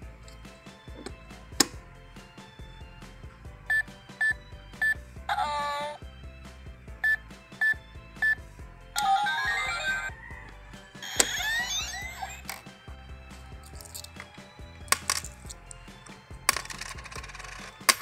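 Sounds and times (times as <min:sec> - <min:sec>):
keypad beeping: 0:07.0 - 0:08.4.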